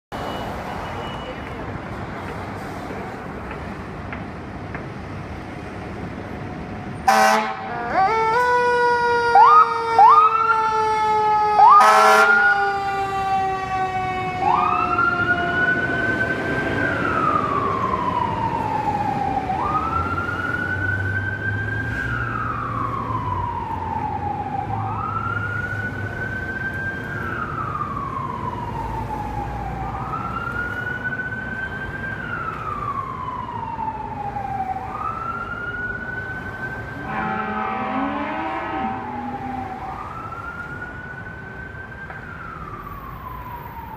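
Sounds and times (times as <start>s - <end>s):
fire engine siren wailing: 6.3s - 43.9s
horn blast: 7.1s - 7.7s, 37.0s - 39.4s.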